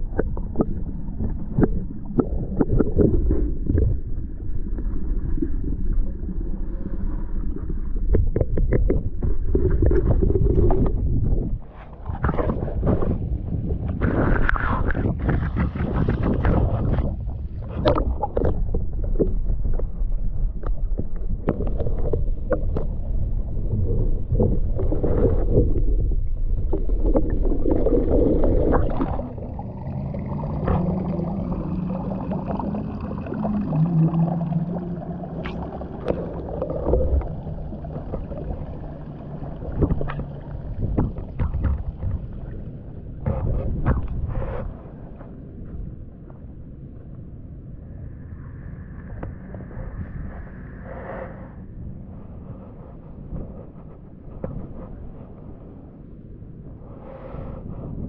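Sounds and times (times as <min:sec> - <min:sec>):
low steady hum: 0:00.0 - 0:58.0
wind buffeting microphone: 0:07.6 - 0:32.3
water splashing against rocks: 0:23.9 - 0:32.6.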